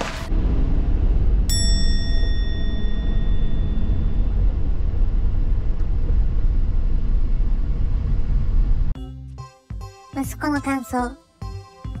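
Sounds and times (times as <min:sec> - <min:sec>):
road and engine rumble: 0:00.0 - 0:09.0
bell-like chime: 0:01.5 - 0:04.4.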